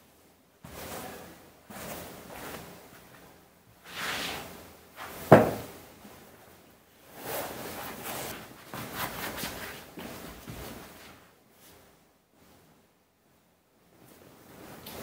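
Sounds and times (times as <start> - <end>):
rustling of shoes: 7.0 - 12.8.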